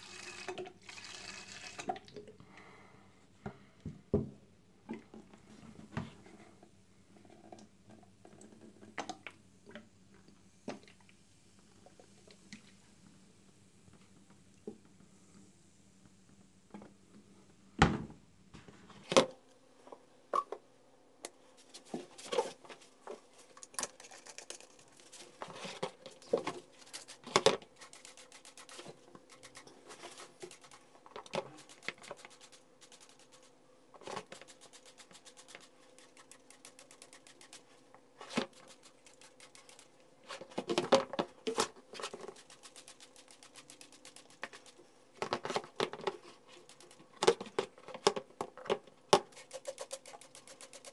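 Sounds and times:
hands scrubbing plastic tank: 21.6s - 48.1s, 49.2s - 50.9s.

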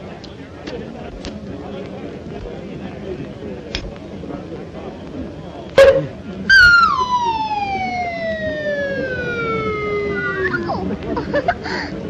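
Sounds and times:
descending cartoon whistle: 6.5s - 10.9s.

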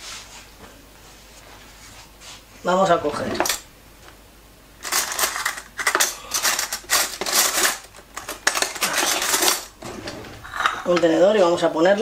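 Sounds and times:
metal cutlery clattering: 3.3s - 3.6s, 4.8s - 9.8s.

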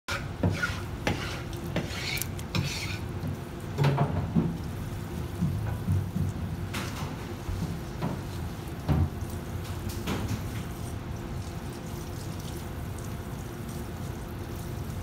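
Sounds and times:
knife scraping: 0.1s - 3.1s.

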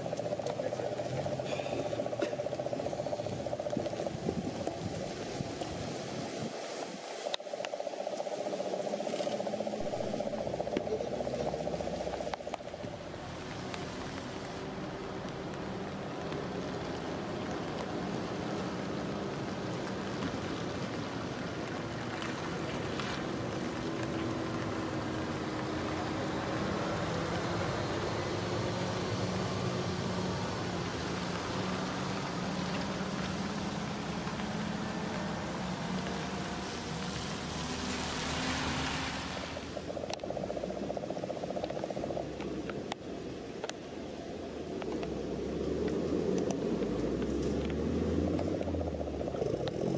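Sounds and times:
tyres hissing on wet road: 11.0s - 40.0s.

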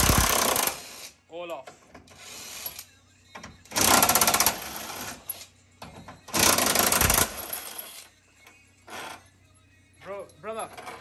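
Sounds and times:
impact wrench rattling: 0.0s - 0.9s, 6.3s - 7.9s.

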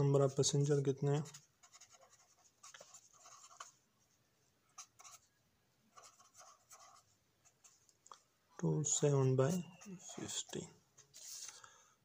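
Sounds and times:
pen scratching on paper: 1.2s - 3.8s, 4.8s - 5.3s, 5.9s - 7.8s.

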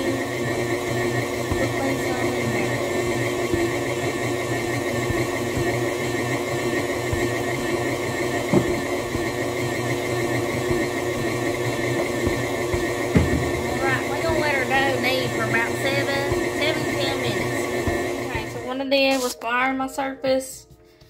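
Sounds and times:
stand mixer kneading dough: 0.0s - 18.8s
knock: 8.5s - 8.9s, 13.1s - 13.7s.

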